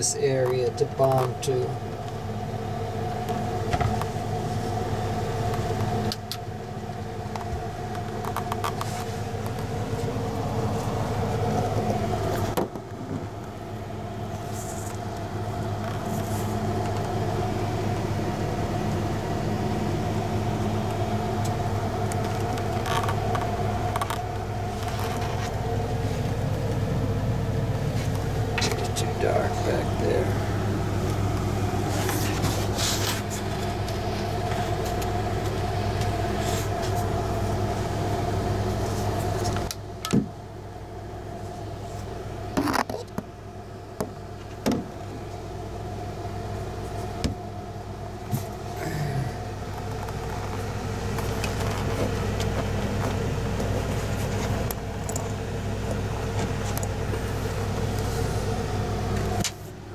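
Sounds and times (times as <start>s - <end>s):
steady mechanical hum: 0.0s - 59.9s.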